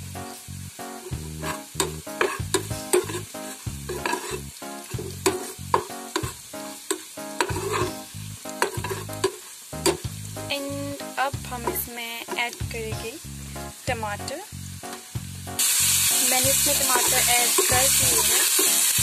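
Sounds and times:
frying in hot oil sizzling: 0.0s - 19.0s
ladle clinking and scraping pan: 1.1s - 8.0s, 8.6s - 10.0s, 16.9s - 18.7s.

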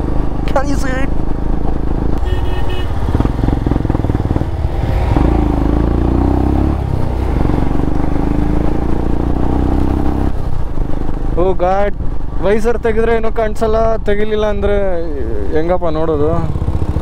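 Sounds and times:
wind and road noise: 0.0s - 17.0s
motorcycle engine under throttle: 1.2s - 11.2s, 16.1s - 17.0s.

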